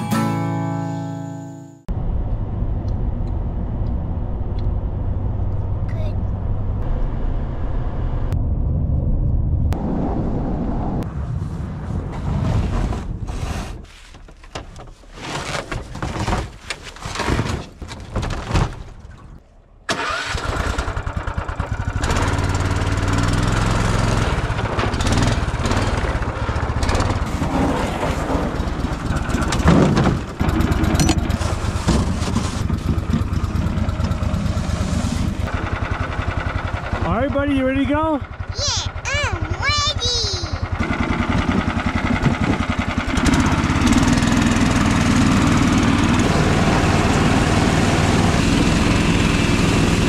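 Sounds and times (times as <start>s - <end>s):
truck driving on snow: 1.9s - 14.1s, 19.9s - 39.6s, 40.2s - 50.0s
knocks and handling noises: 13.9s - 19.1s
small petrol engine running: 19.9s - 27.2s, 30.4s - 50.0s.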